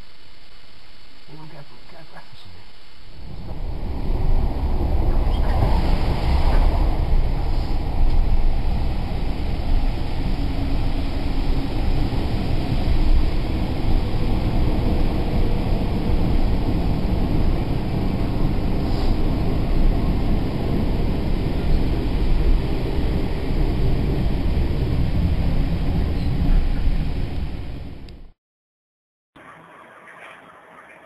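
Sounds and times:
train wheels rumbling on track: 0:03.3 - 0:27.6.

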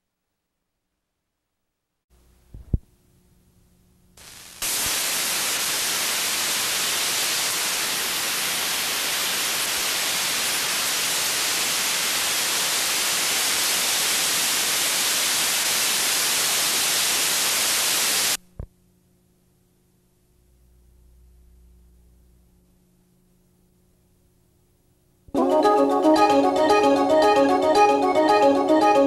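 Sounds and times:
videotape static hiss: 0:02.2 - 0:02.9, 0:04.1 - 0:18.7.

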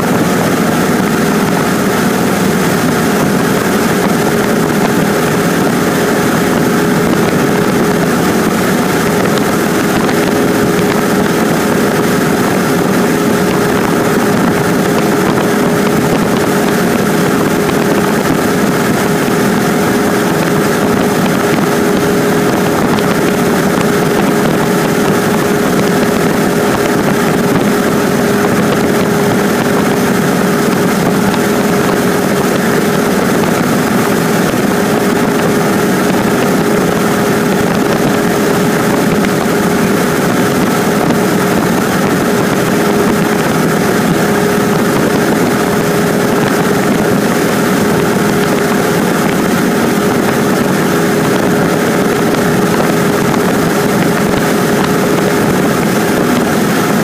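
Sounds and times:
light aircraft engine and propeller: 0:00.0 - 0:57.0.

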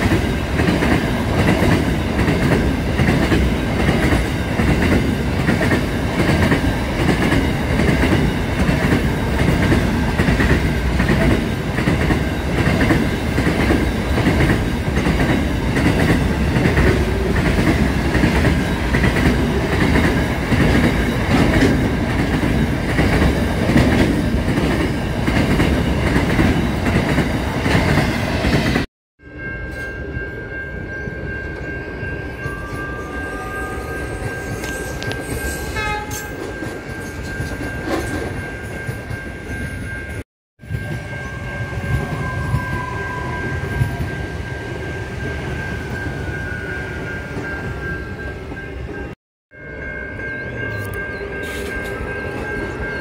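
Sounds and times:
freight train wheels rumbling: 0:00.0 - 0:49.2
electric train passing: 0:00.0 - 0:53.0
steady high tone: 0:24.4 - 0:53.0.

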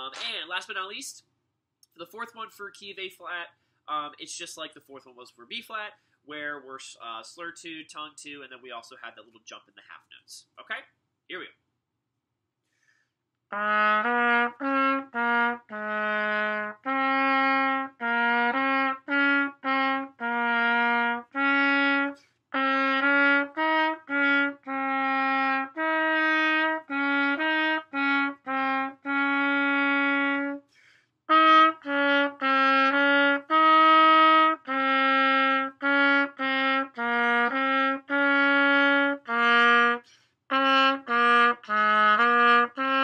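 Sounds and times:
trumpet playing a scale: 0:13.5 - 0:30.7, 0:31.3 - 0:43.0.

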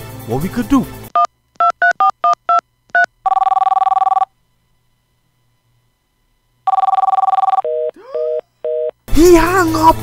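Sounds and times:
phone ringing tone: 0:01.2 - 0:04.3, 0:06.6 - 0:09.0.

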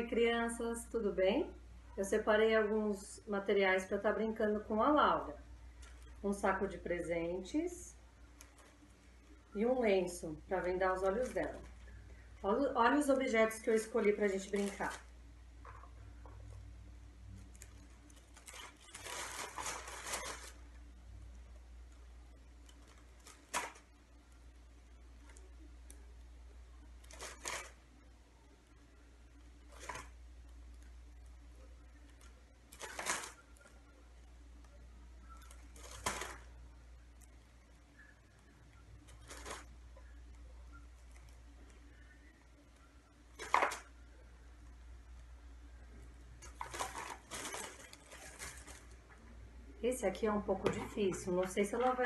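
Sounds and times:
gift bag rustling: 0:10.1 - 0:12.0, 0:13.8 - 0:15.1, 0:17.3 - 0:20.9, 0:27.0 - 0:27.8, 0:29.6 - 0:30.2, 0:32.0 - 0:33.8, 0:35.3 - 0:36.6, 0:39.0 - 0:39.8, 0:46.4 - 0:49.1
small objects clattering: 0:46.4 - 0:49.1.

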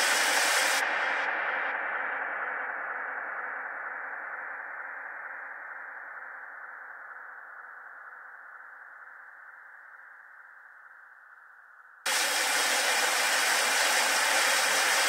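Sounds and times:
static hiss: 0:00.0 - 0:01.3, 0:12.1 - 0:15.0.

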